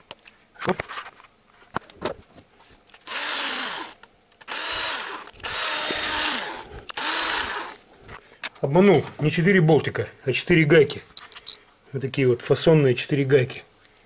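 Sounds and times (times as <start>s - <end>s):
cordless drill spinning off nuts: 3.0s - 7.8s.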